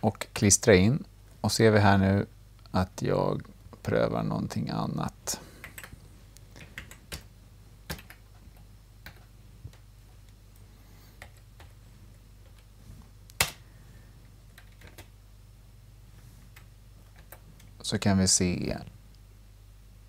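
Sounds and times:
faint low hum: 0.0 - 20.0
keyboard keystrokes: 7.9 - 9.8, 14.6 - 15.1.

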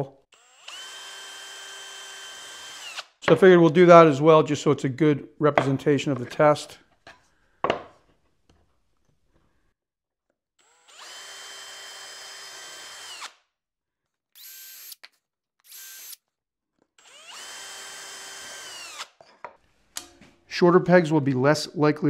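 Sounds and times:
cordless drill whining: 0.3 - 3.2, 10.6 - 13.4, 14.4 - 16.2, 17.0 - 19.2.

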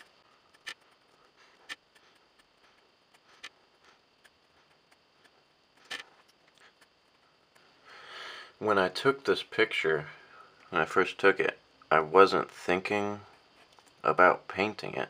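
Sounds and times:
pencil ticking on paper: 0.0 - 7.7.

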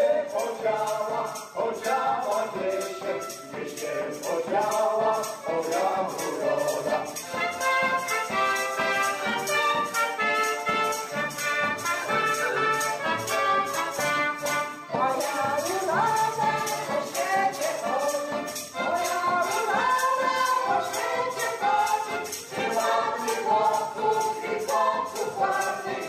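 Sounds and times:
trumpet: 0.0 - 4.4, 5.0 - 24.9
accordion: 0.0 - 26.0
tambourine: 0.0 - 26.0
clarinet: 6.5 - 15.5.

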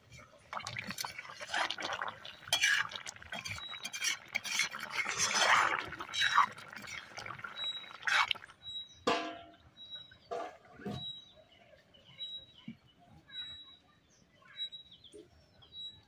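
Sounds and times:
spoon stirring thick curry: 0.1 - 8.5
metal spoon scraping a pan: 0.8 - 8.4.

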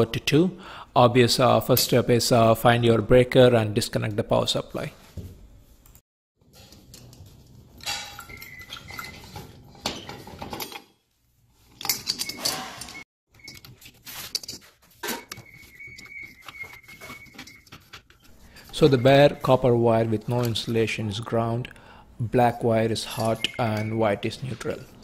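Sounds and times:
metal chain clinking and rattling: 11.8 - 13.0.

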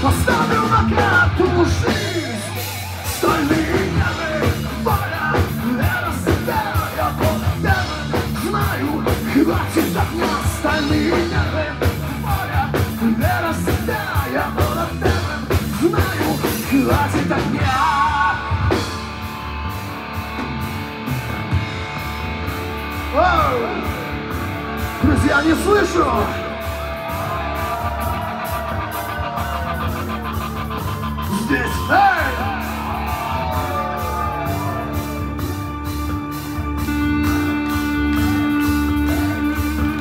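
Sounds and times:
lead vocals singing: 0.0 - 18.9
heavy metal band playing: 0.0 - 40.0.

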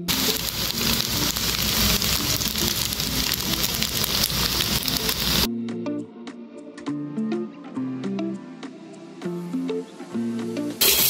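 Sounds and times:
loud even hiss: 0.0 - 5.5, 10.8 - 11.0
faint background music: 0.1 - 11.0.

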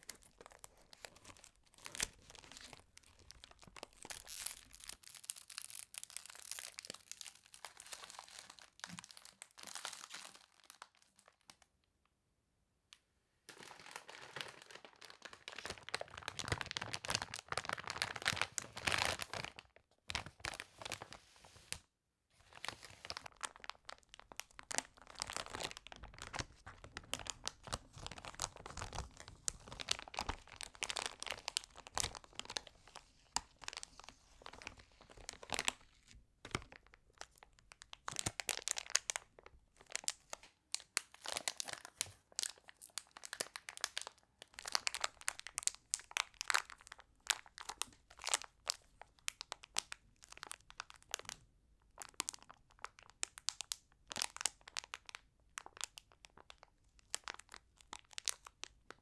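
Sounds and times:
plastic bags crinkling: 13.5 - 21.1, 22.6 - 37.3.

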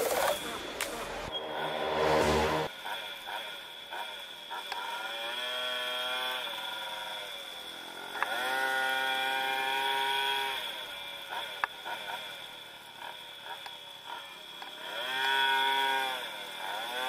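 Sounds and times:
moped engine revving high: 0.0 - 3.3.

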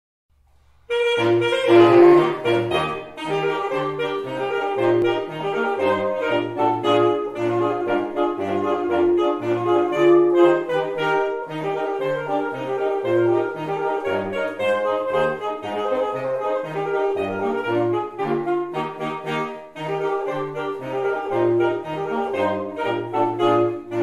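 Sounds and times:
saxophone quartet playing: 0.9 - 24.0.

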